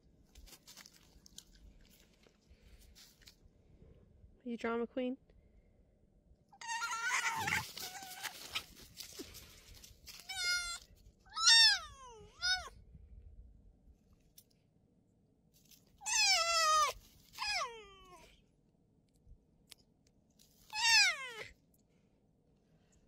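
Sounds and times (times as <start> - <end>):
fox whining and crying: 6.6 - 8.8, 10.2 - 12.7, 16.0 - 18.4, 20.6 - 21.5.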